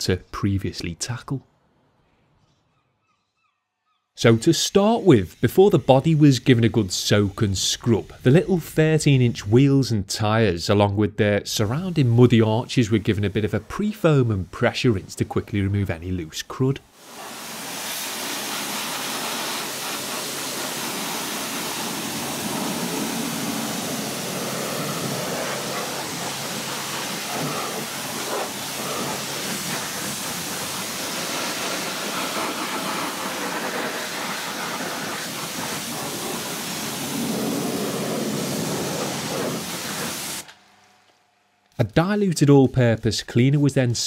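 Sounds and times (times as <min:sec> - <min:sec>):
pressure washer spraying water: 0:04.2 - 0:09.7, 0:11.5 - 0:16.2, 0:16.9 - 0:41.0.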